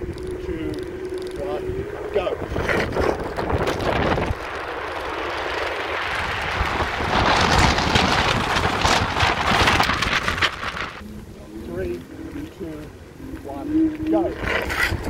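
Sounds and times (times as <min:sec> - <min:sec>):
scooter tyre rumble on asphalt: 0:00.0 - 0:15.0
wind rushing over microphone: 0:00.0 - 0:15.0.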